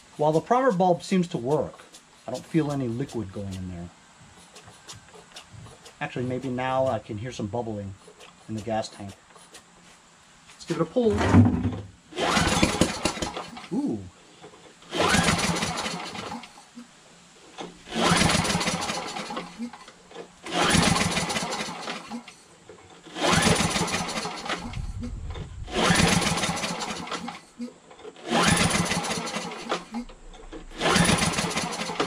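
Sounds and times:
snowblower engine pull-starting: 0:11.2 - 0:16.6, 0:17.6 - 0:32.0.

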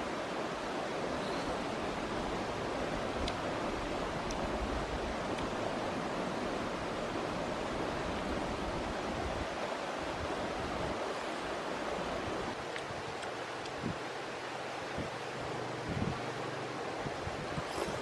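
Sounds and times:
steady rushing outdoor noise: 0:00.0 - 0:18.0
faint clicks: 0:03.2 - 0:03.4.

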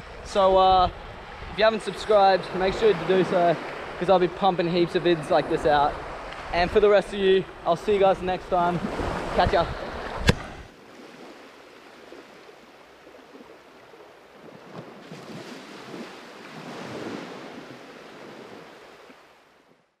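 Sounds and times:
wind on microphone: 0:00.0 - 0:04.0, 0:05.4 - 0:10.7
small waves washing on shore: 0:00.0 - 0:19.8.

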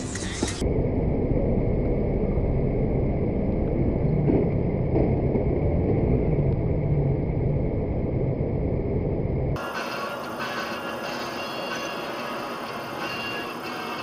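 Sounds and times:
bus engine: 0:03.6 - 0:14.0.

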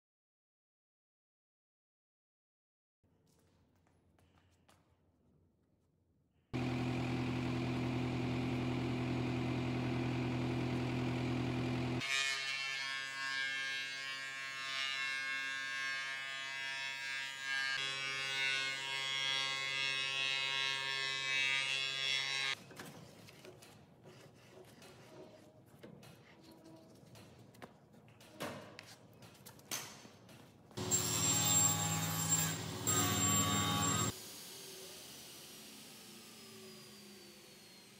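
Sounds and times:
bright machine whine: 0:30.8 - 0:37.9.

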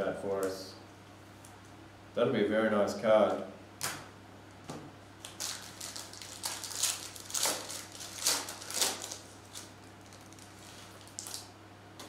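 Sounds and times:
foil wrapper crinkling and tearing: 0:05.2 - 0:11.5.

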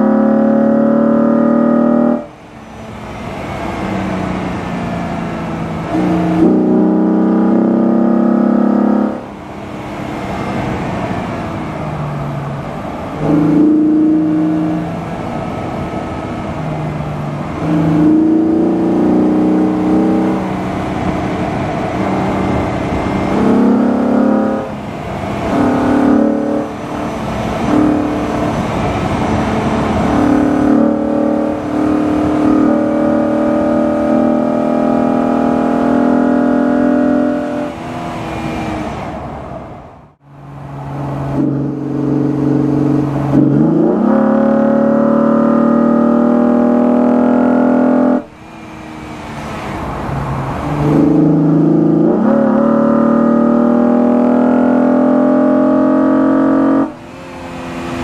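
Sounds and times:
car engine accelerating: 0:00.0 - 0:58.0.

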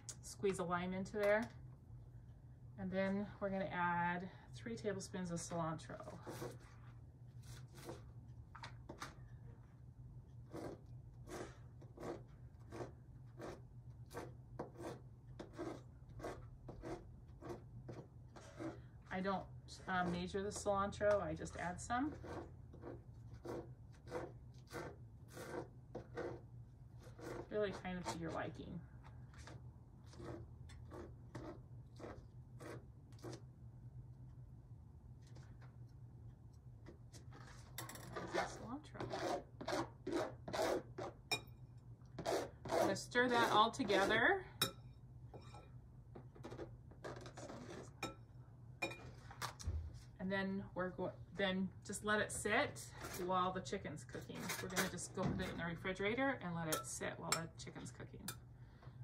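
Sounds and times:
low steady hum: 0:00.0 - 0:59.0
utensil scraping cutting board: 0:10.5 - 0:18.8, 0:21.5 - 0:26.4, 0:27.0 - 0:28.5, 0:38.2 - 0:41.2, 0:42.2 - 0:44.3.

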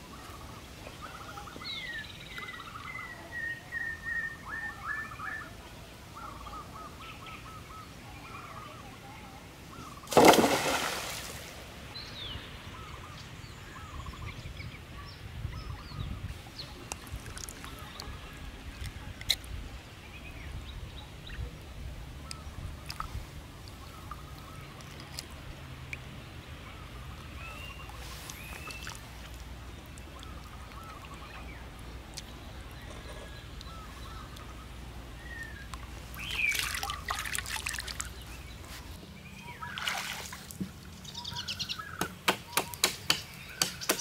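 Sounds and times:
loud splash of pond water: 0:10.1 - 0:11.8, 0:36.2 - 0:38.2, 0:39.7 - 0:40.8.

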